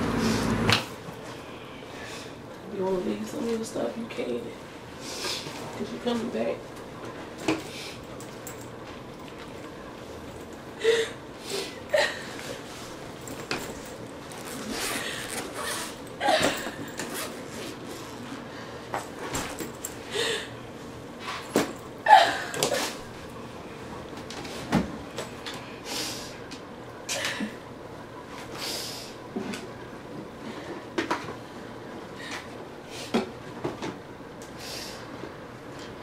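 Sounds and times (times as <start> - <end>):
suitcases and clothes rustling: 12.3 - 18.4.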